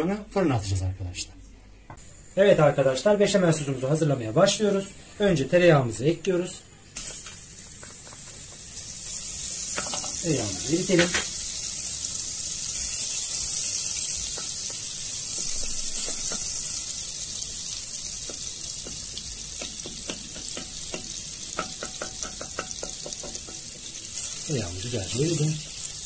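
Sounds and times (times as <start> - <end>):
butter sizzling in pot: 7.0 - 26.0.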